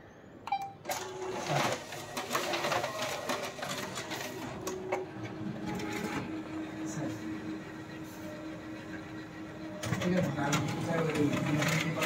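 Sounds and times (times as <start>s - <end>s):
key beep: 0.5s - 0.8s
copier motor hum: 0.8s - 12.0s
document feeder rapid clicking: 0.9s - 6.4s, 9.8s - 12.0s.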